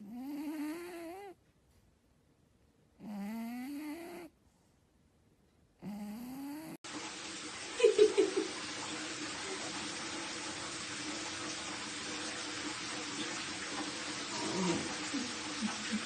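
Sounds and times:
cat snoring with whistling tone: 0.0 - 1.4, 3.0 - 4.3, 5.8 - 6.8
running water hiss: 6.9 - 16.0.

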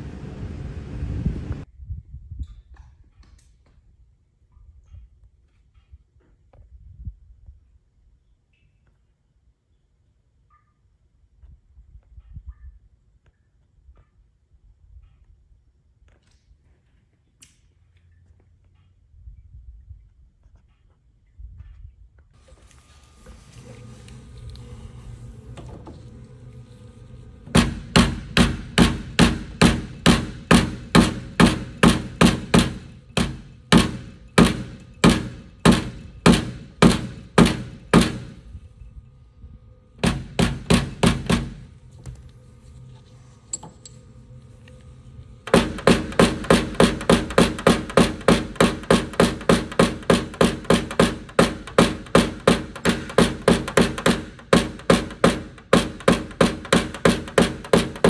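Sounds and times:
steady background noise: 22.4 - 58.0
mallet tapping metal punch: 27.6 - 38.4.

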